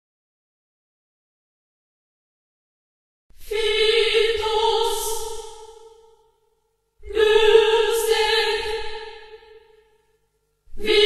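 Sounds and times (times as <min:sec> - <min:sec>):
choir singing long notes: 0:03.4 - 0:06.2, 0:07.0 - 0:09.8, 0:10.7 - 0:11.0.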